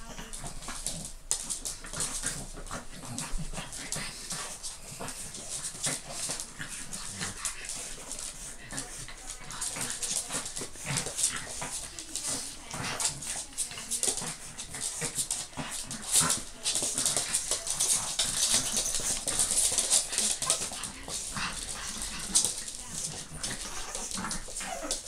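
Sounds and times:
paws clicking on laminate floor: 0:00.0 - 0:25.0.

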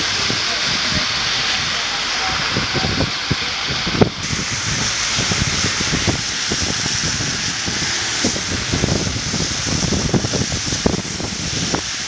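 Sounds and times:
cars driving on wet road: 0:00.0 - 0:12.0
heavy rain hissing: 0:00.0 - 0:12.0
wind thumps on microphone: 0:02.5 - 0:12.0.

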